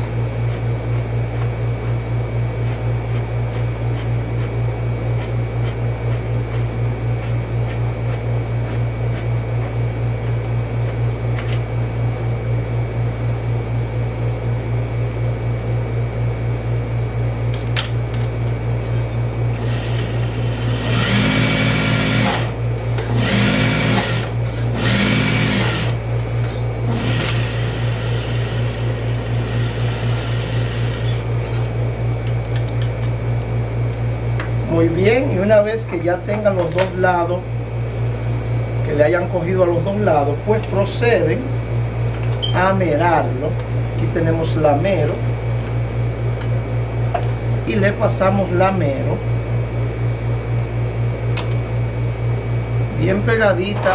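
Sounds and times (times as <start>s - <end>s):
steady low hum: 0.0s - 53.9s
sewing machine stitching: 19.6s - 22.5s, 23.1s - 26.0s, 26.9s - 28.5s.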